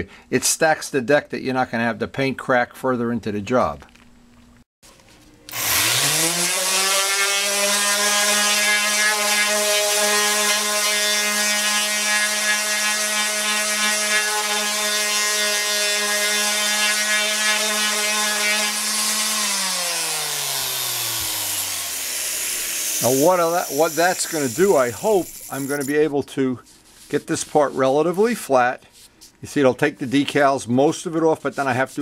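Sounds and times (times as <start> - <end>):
orbital sander whining: 5.5 - 25.9.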